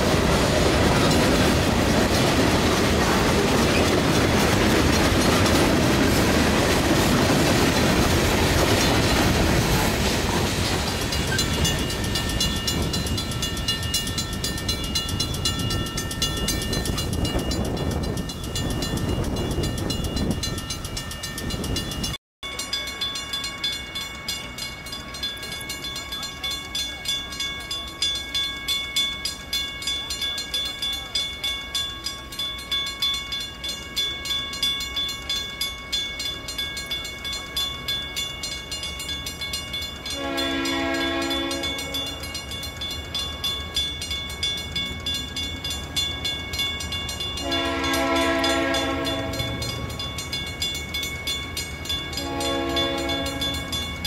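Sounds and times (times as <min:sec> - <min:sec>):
railroad crossing bell ringing: 0:00.0 - 0:54.0
locomotive air horn: 0:40.2 - 0:42.0, 0:47.4 - 0:49.6, 0:52.2 - 0:53.7.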